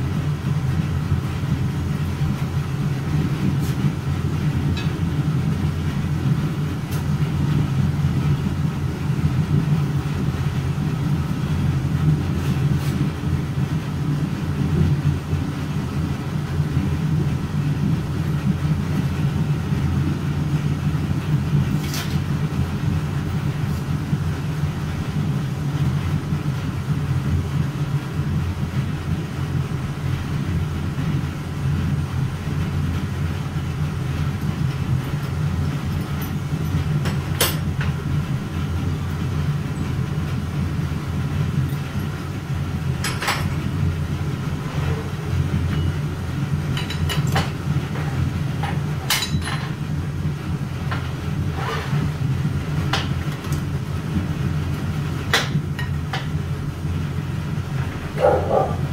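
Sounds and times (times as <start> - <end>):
low roar of foundry equipment: 0.0 - 58.9.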